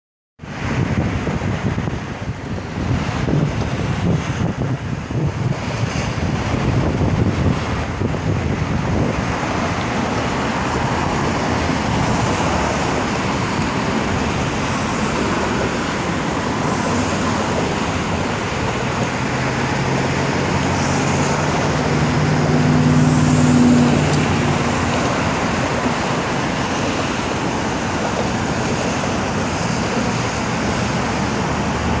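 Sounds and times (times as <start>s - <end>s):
road traffic noise: 0.4s - 32.0s
vehicle engine hum passing: 0.5s - 32.0s.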